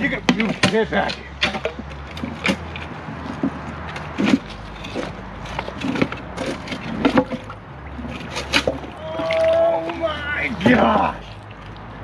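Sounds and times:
metal safe knocking and scraping: 0.0 - 8.9.

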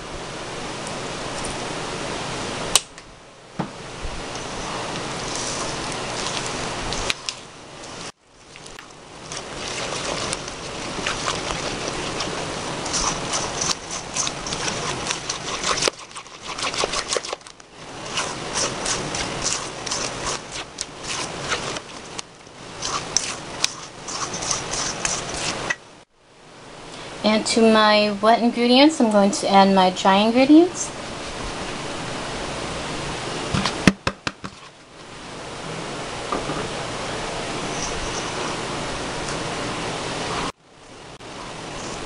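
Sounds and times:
spatula scraping metal bowl: 9.3 - 22.2, 22.8 - 25.8.

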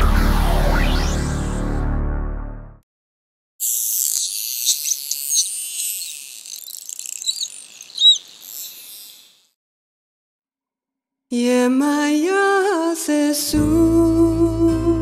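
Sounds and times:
dolphins rapid clicks: 4.1 - 9.1
dolphins whistling underwater: 4.2 - 9.4.

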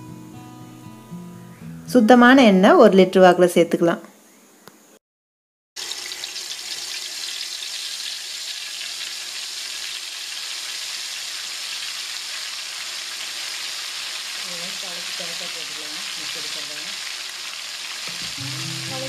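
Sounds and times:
paste sizzling in hot oil: 5.8 - 19.0.

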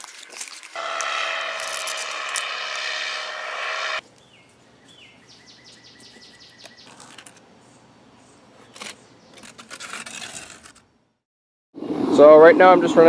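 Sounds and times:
bird chirping: 3.9 - 9.4.

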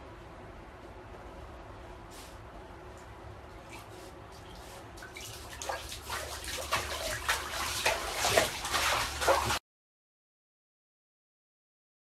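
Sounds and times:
bath water sloshing and splashing: 3.7 - 9.6.

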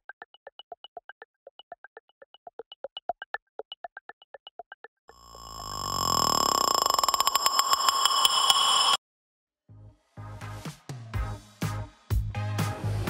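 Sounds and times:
rapid electronic blips: 5.2 - 9.0
steady electronic tone: 5.2 - 9.0.

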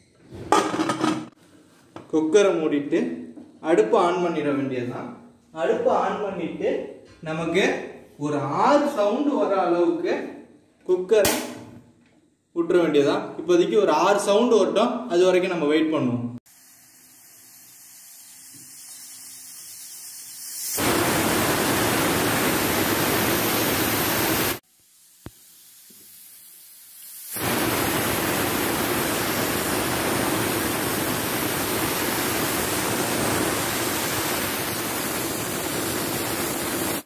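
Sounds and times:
pressure cooker whistling: 16.5 - 24.6, 25.2 - 37.0
rising steam hiss: 16.5 - 37.0.

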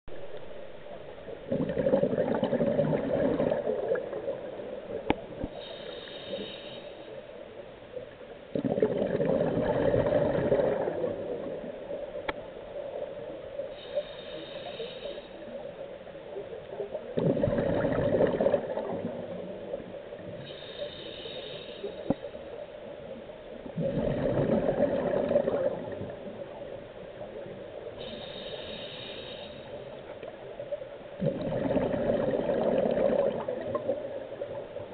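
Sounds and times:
exhaust bubbles rushing: 1.5 - 4.2, 8.6 - 11.2, 17.2 - 19.0, 23.8 - 26.1, 31.2 - 33.9
regulator inhale hiss: 5.4 - 7.4, 13.6 - 15.9, 20.3 - 22.5, 27.8 - 30.2.

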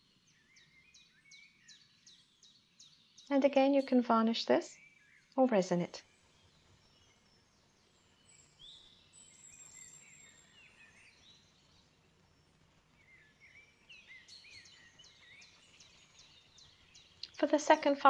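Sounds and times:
faint bird chirps: 6.3 - 17.9.

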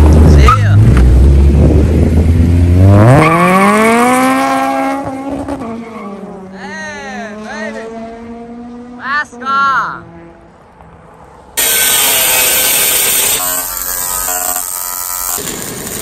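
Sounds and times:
car engine accelerating hard: 0.0 - 6.6.

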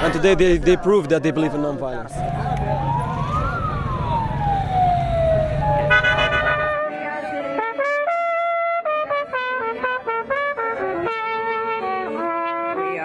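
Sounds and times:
street noise: 0.0 - 13.0
siren wailing: 2.2 - 7.6
brass music led by trumpet: 5.6 - 13.0.

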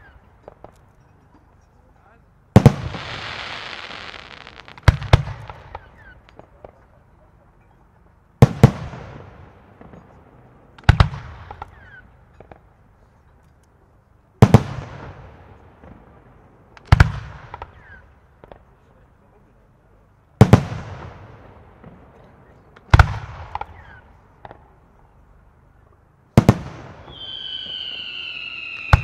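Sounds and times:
firework bangs with rumbling echo: 2.5 - 6.8, 10.8 - 11.8, 20.4 - 22.2, 22.9 - 24.6, 26.4 - 28.2.

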